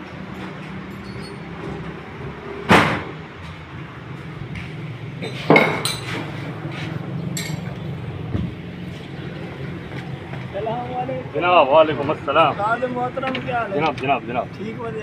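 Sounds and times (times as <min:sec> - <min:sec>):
light metallic clinks: 0:00.8 - 0:01.6, 0:07.3 - 0:07.9.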